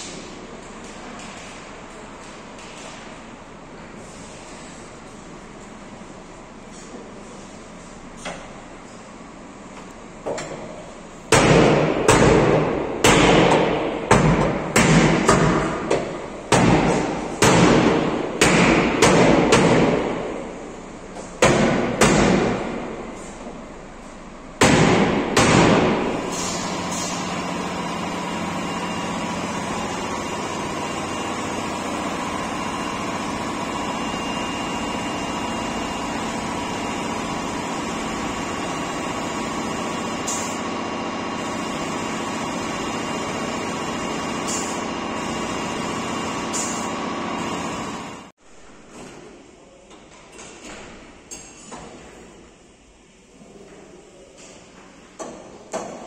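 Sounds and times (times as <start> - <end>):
mechanical hum: 0.0 - 56.0
hammer striking sheet metal: 11.3 - 20.5, 21.4 - 23.0, 24.6 - 26.3.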